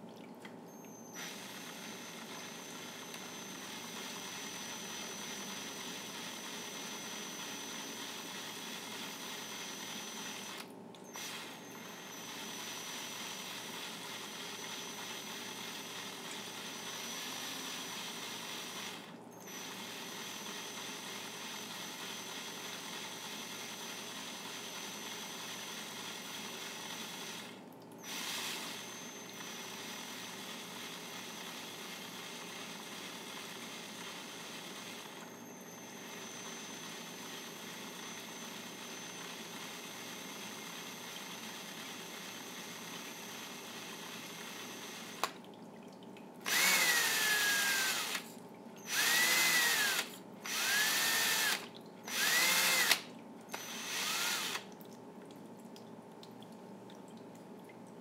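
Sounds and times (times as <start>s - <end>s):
wood lathe running with whine: 28.1s - 45.3s, 46.5s - 54.7s.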